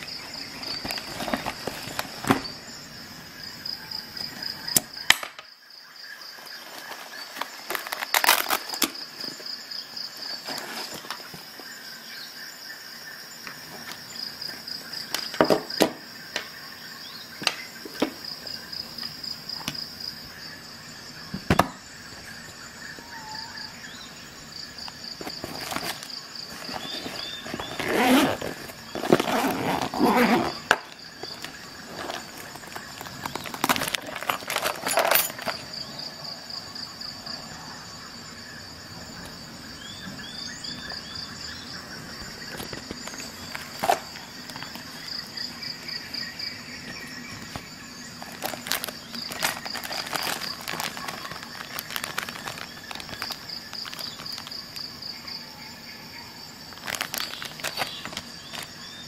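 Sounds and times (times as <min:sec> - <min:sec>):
nylon pouch rustling: 0:00.0 - 0:02.6, 0:06.3 - 0:09.5, 0:10.1 - 0:11.5, 0:24.8 - 0:35.9, 0:42.4 - 0:55.0, 0:56.7 - 0:59.0.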